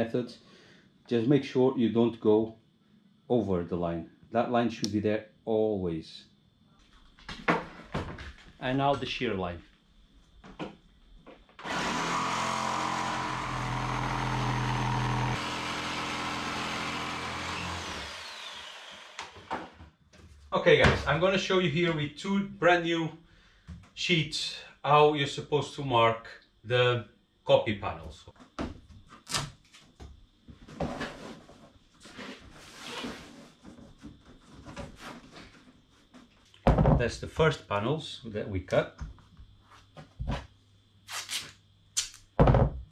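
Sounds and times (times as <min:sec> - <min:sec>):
electric power tool running: 0:11.6 - 0:19.8.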